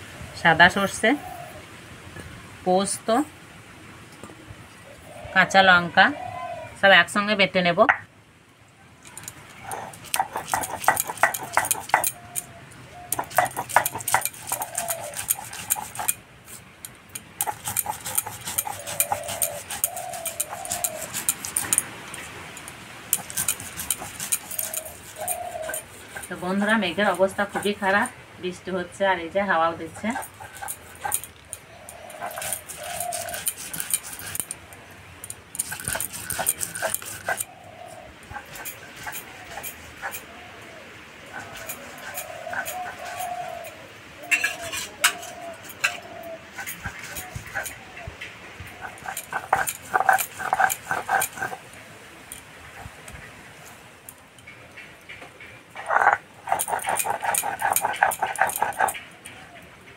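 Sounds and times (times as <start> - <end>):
stone roller grinding on stone slab: 9.6 - 12.5, 13.1 - 28.1, 29.8 - 34.6, 35.2 - 37.5, 38.3 - 40.2, 41.3 - 43.5, 46.6 - 47.8, 48.8 - 51.8, 55.8 - 59.0.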